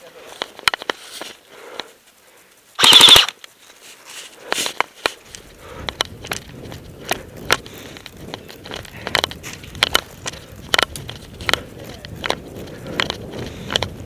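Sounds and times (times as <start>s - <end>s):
footsteps crunching through snow: 0.0s - 2.8s, 3.5s - 5.5s
scattered clicks: 0.2s - 3.8s, 4.4s - 14.0s
airsoft gun full-auto burst: 2.8s - 3.4s.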